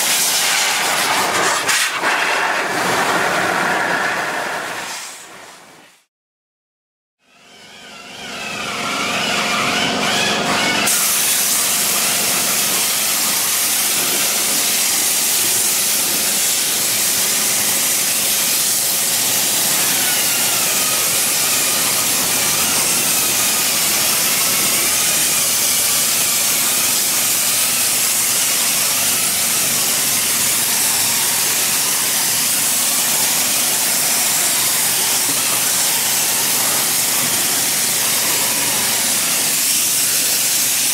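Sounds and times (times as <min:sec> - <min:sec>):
compressed air spray hissing: 0:28.2 - 0:40.9.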